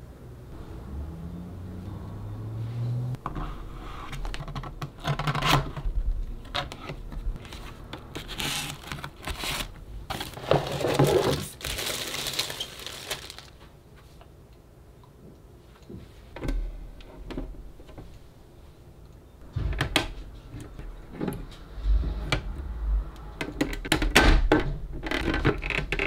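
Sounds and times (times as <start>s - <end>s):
plastic wrapper crinkling: 8.2s - 13.7s.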